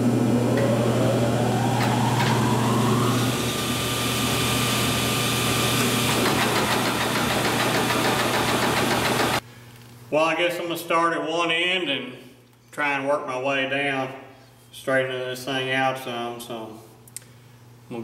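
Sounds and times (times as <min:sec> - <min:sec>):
electric motor whine: 0:00.0 - 0:06.6
strong electrical hum: 0:00.0 - 0:07.8.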